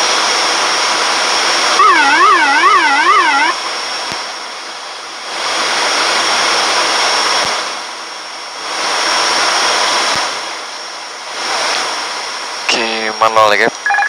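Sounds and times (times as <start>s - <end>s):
airflow and engine noise: 0.0s - 13.9s
thin high steady tone: 1.8s - 3.7s.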